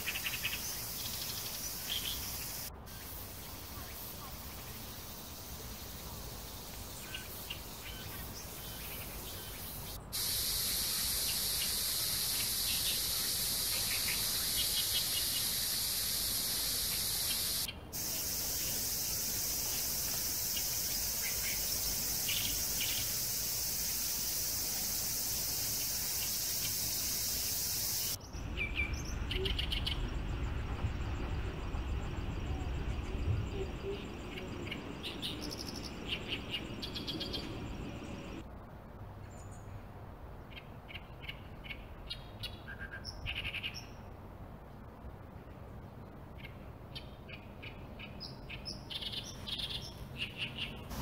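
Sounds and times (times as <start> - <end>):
bird chirps: 0.0 - 30.2, 32.5 - 38.4
high-pitched insect chorus: 0.0 - 38.4
low outdoor rushing noise: 0.0 - 51.0.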